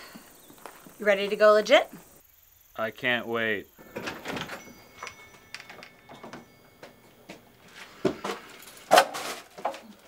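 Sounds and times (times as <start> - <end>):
footsteps: 0.0 - 2.0, 4.0 - 10.0.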